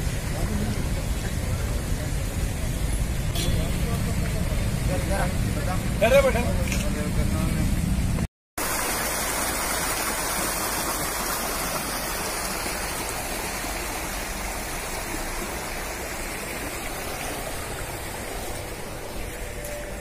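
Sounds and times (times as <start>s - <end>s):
flowing water rushing: 8.6s - 20.0s.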